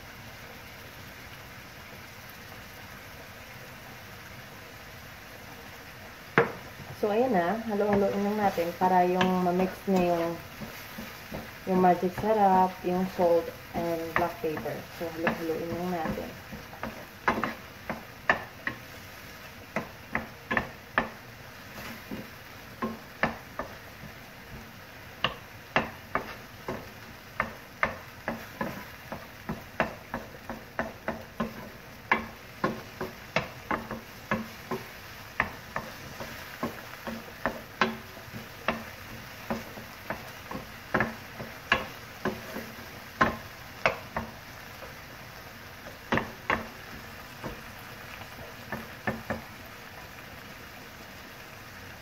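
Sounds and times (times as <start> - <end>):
food sizzling: 0.0 - 52.0
spatula scraping frying pan: 6.4 - 49.5.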